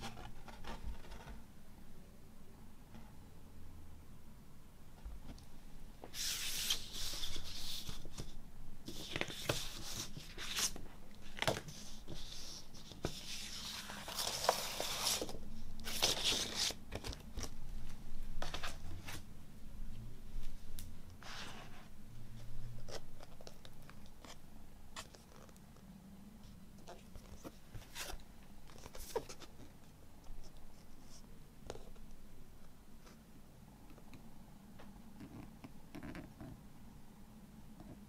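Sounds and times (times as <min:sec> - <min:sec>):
paper and cardboard rustling: 0:06.1 - 0:17.6, 0:18.4 - 0:19.2, 0:26.9 - 0:29.8.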